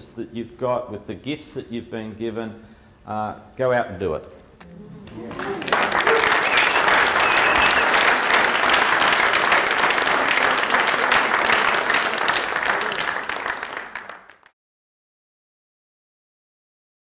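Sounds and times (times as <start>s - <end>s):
audience applauding: 5.0s - 14.5s.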